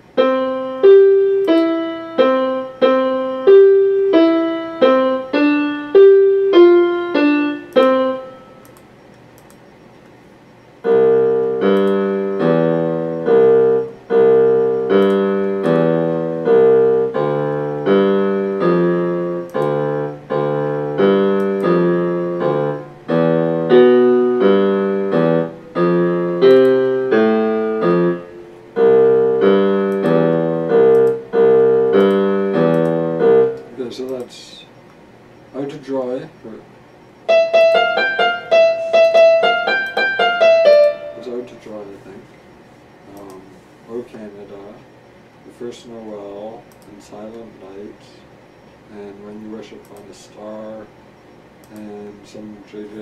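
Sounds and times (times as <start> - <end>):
electronic keyboard piano melody: 0.0 - 9.1, 10.6 - 34.6, 37.2 - 42.2.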